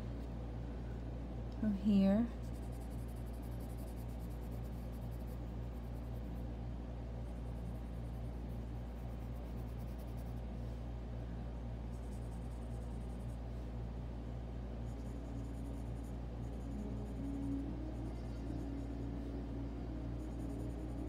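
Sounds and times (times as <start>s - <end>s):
steady low hum: 0.0s - 21.0s
pencil scratching on paper: 2.4s - 6.2s.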